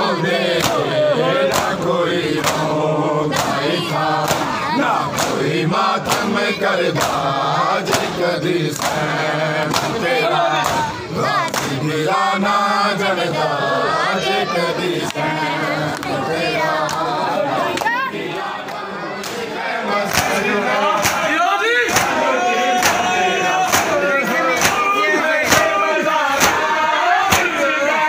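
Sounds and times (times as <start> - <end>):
men chanting in unison: 0.0 - 28.0
hands slapping chests: 0.6 - 0.8, 1.5 - 2.7, 3.3 - 3.6, 4.2 - 5.4, 6.0 - 6.3, 7.0 - 7.2, 7.9 - 8.2, 8.8 - 10.0, 10.6 - 11.8, 18.7 - 19.5, 20.1 - 20.4, 21.0 - 21.3, 21.9 - 22.2, 22.8 - 27.6.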